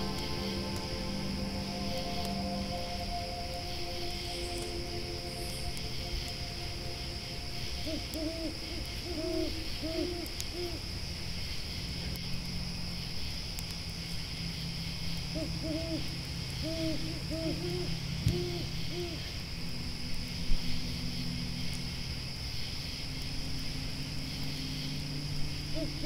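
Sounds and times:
owl hooting: 0.0 - 10.8, 15.3 - 19.4, 25.7 - 26.0
campfire crackling: 0.0 - 26.0
grasshoppers chirring: 0.0 - 26.0.

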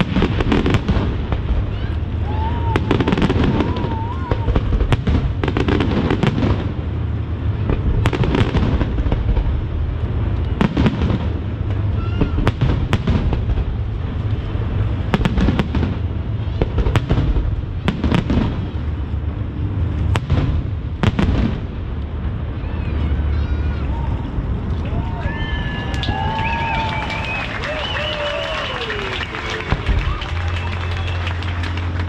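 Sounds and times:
fireworks bursting: 0.0 - 24.8, 25.7 - 32.0
continuous low rumble: 0.0 - 32.0.

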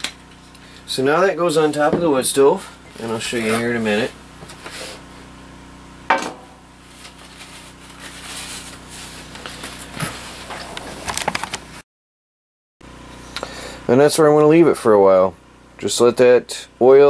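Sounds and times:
frying pan knocking on stove: 6.1 - 6.6.

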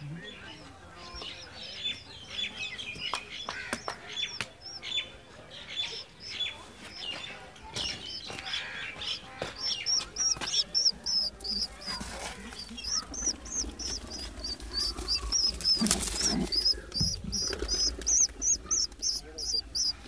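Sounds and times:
small birds chirping: 0.0 - 20.0.

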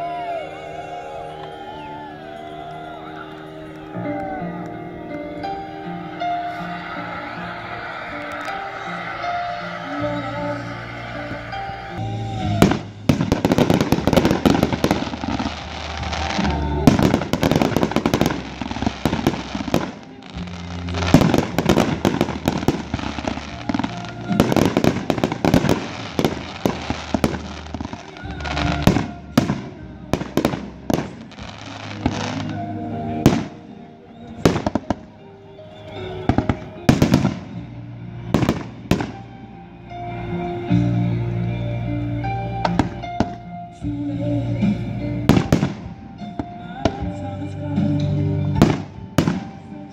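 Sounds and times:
background music: 0.0 - 49.9
fireworks bangs and crackling: 6.0 - 35.0, 35.8 - 37.6, 38.3 - 39.4, 45.2 - 47.2, 48.6 - 49.9.

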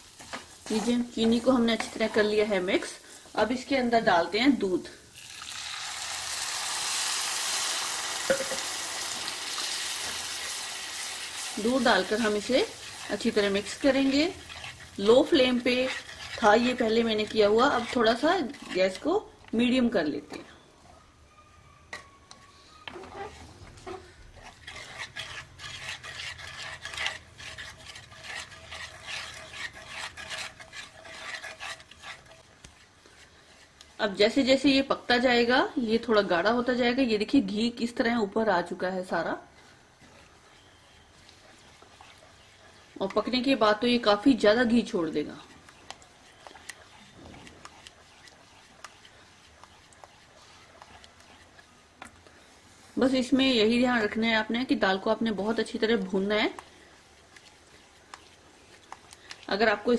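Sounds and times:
milk sizzling in hot pan: 0.0 - 19.3, 38.6 - 59.9.

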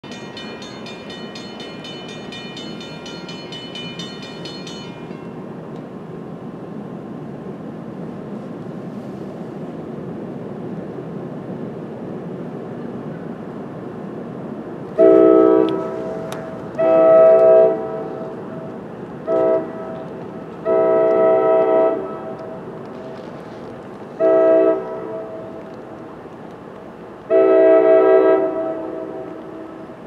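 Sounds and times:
train rumbling: 0.0 - 30.0
train air horn blasts: 15.0 - 18.3, 19.2 - 22.6, 24.2 - 25.6, 27.3 - 29.8.

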